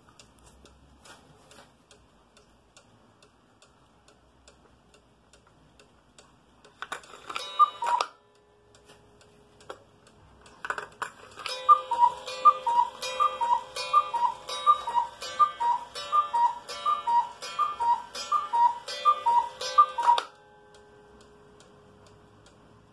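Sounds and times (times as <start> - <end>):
cuckoo clock two-note call: 7.4 - 8.7, 11.4 - 21.6
pendulum ticking: 11.3 - 22.9.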